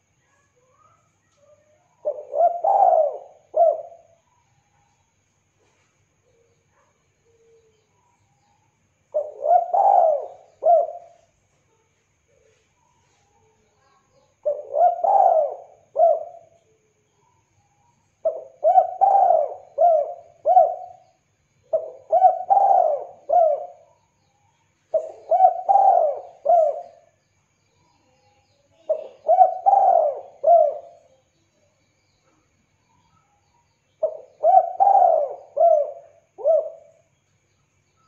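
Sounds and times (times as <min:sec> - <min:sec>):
dove cooing: 0:02.0 - 0:04.2, 0:09.1 - 0:11.3, 0:14.4 - 0:16.6, 0:18.2 - 0:23.9, 0:24.9 - 0:27.2, 0:28.8 - 0:31.2, 0:34.0 - 0:37.1.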